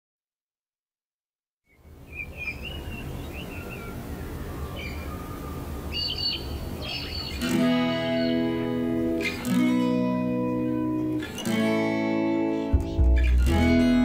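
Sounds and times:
small birds chirping: 0:01.7 - 0:09.5
guitar chord strummed: 0:07.4 - 0:14.0.

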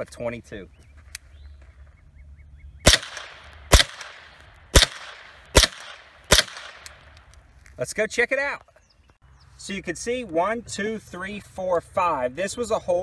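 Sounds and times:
rifle shots with echo: 0:02.8 - 0:07.1.

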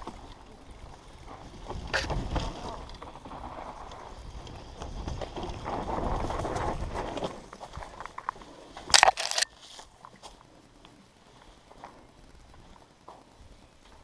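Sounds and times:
bike knocks and rattles: 0:00.0 - 0:08.2
tyres rolling over dirt and stones: 0:00.0 - 0:10.5
wind buffeting microphone: 0:00.7 - 0:08.0.

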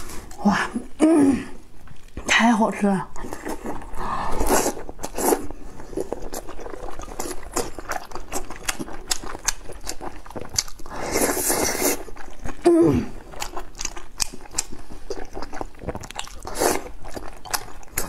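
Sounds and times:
slurping noodles: 0:03.3 - 0:08.5, 0:10.2 - 0:13.6, 0:14.4 - 0:17.3
chewing with wet mouth clicks: 0:04.6 - 0:12.6, 0:13.2 - 0:18.0.

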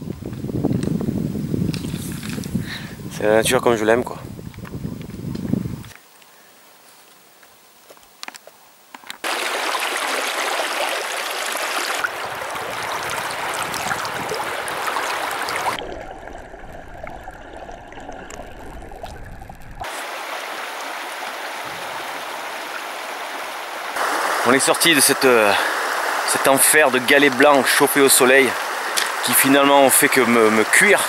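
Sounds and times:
river water over pebbles: 0:09.2 - 0:31.0.

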